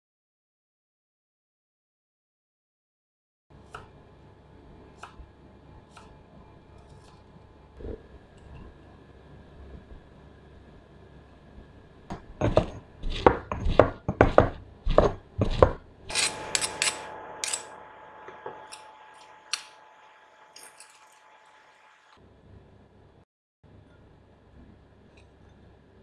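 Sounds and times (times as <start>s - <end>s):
pestle pounding in stone mortar: 12.2s - 15.8s
metal spoon scraping stone: 16.1s - 19.8s, 20.5s - 21.4s.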